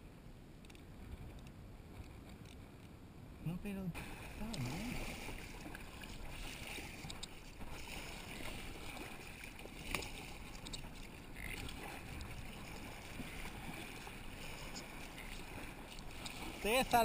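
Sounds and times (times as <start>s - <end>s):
kayak paddle splashing: 4.0s - 17.0s.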